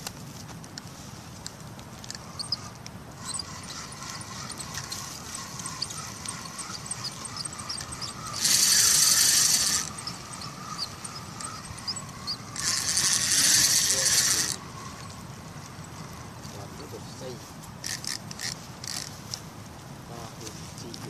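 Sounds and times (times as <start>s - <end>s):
faint high chirping ticks: 2.1s - 12.9s
fishing reel whirring: 2.1s - 19.4s.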